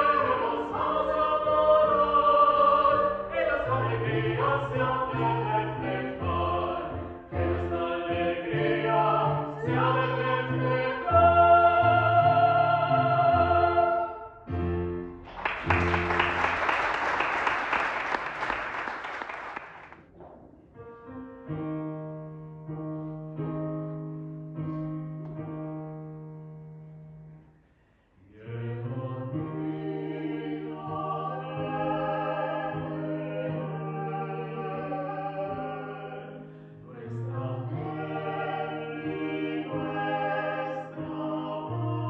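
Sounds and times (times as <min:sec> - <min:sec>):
vocal quartet singing carol: 0:00.0 - 0:14.6, 0:28.2 - 0:42.0
audience applause: 0:15.3 - 0:20.0.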